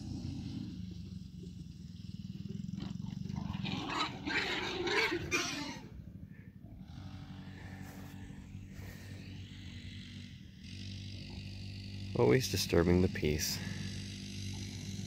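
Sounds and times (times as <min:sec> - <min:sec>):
distant dirt bike engines buzzing: 0:00.0 - 0:15.0
loud rough outburst: 0:03.0 - 0:09.4.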